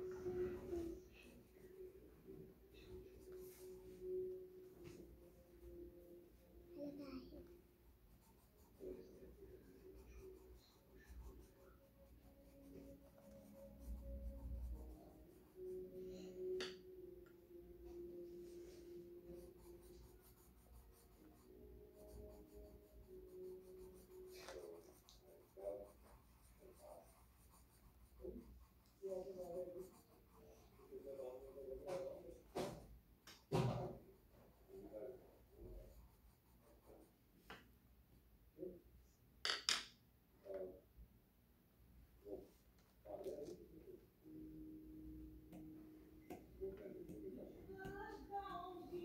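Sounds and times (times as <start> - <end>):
pencil scribbling on paper: 7.8 - 16.5, 17.9 - 32.8, 34.2 - 37.2.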